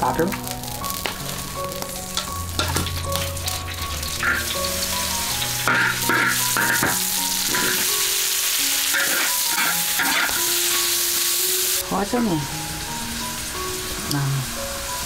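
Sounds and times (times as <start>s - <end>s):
food sizzling in hot oil: 0.0s - 15.0s
metal ladle scraping a wok: 2.5s - 11.0s.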